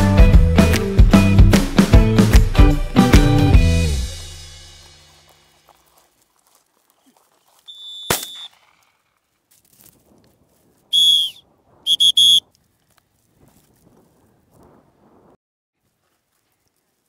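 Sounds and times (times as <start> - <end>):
feet rustling in field cover: 4.7 - 17.0
dog whistle blasts: 7.7 - 8.5, 10.9 - 12.4
sharp crack: 8.0 - 9.2.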